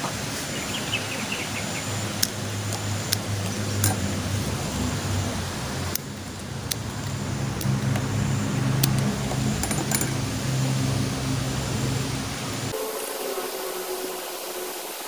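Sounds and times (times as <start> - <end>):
low motor hum: 1.0 - 12.8
metallic clicks of wire and pliers: 2.2 - 4.1, 8.8 - 10.2.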